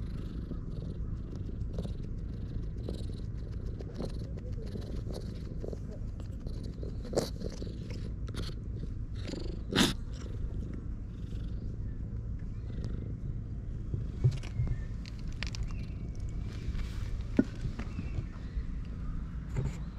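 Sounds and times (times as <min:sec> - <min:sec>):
cat purring: 0:00.0 - 0:14.4.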